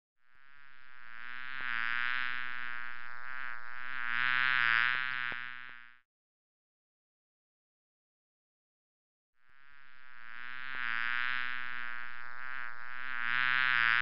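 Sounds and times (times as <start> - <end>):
housefly buzzing: 0.3 - 6.0, 9.4 - 14.0.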